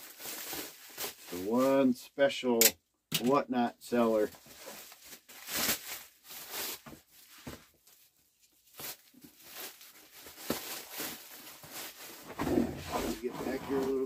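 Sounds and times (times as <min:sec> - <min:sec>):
bag rustling and knocking: 0:08.8 - 0:13.3.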